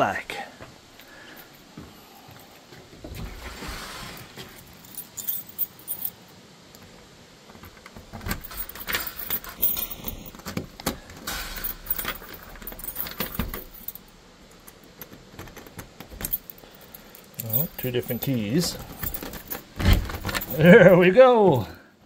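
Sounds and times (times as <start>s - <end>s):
keys jangling in a door lock: 4.6s - 6.2s, 7.6s - 20.7s.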